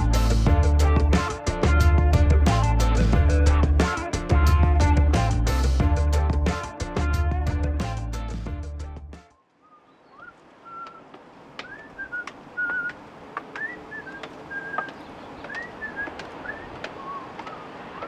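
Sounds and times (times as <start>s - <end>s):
short whistled notes: 9.4s - 13.0s, 13.6s - 17.7s
steady background hiss: 9.6s - 18.0s
faint clicks: 10.3s - 18.0s.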